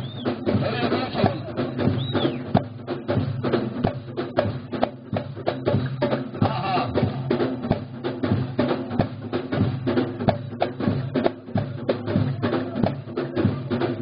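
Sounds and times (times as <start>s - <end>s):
deep drum beating: 0.0s - 14.0s
frame drums beating: 0.0s - 14.0s.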